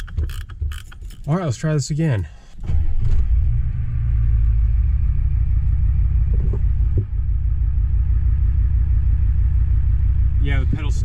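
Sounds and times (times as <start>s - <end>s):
diesel engine idling: 1.2s - 11.0s.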